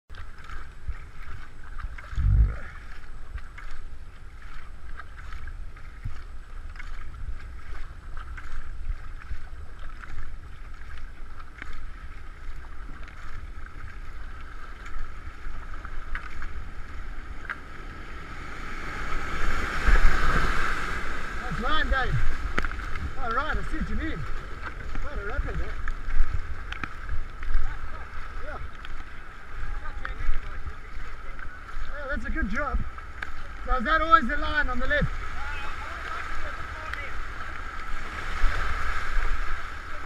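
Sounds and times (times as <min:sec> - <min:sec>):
kayak paddles splashing: 0:00.1 - 0:40.0
water rushing past hull: 0:00.1 - 0:40.0
wind buffeting microphone: 0:00.8 - 0:03.5
whitewater rapid rushing: 0:07.6 - 0:40.0.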